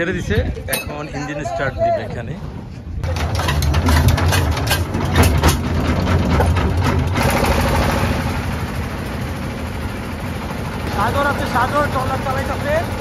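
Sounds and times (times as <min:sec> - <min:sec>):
diesel engine droning: 0:04.6 - 0:13.0.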